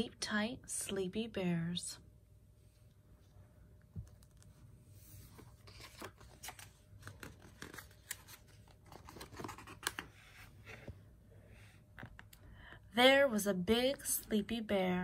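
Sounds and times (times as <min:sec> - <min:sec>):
book pages turning: 0:04.0 - 0:11.0
paper crackles and clicks: 0:05.6 - 0:10.2.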